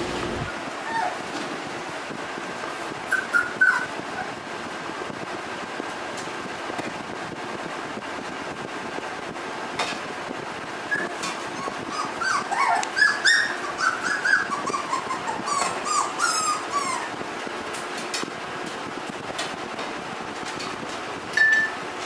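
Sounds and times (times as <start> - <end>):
puppies whimpering and yipping: 0.4 - 1.3, 2.7 - 4.4, 10.9 - 17.2.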